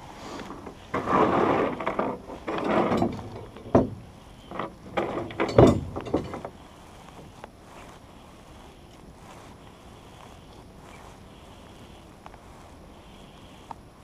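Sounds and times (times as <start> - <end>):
scraping in a rowing boat: 0.0 - 13.6
knocks in a rowing boat: 1.5 - 6.5.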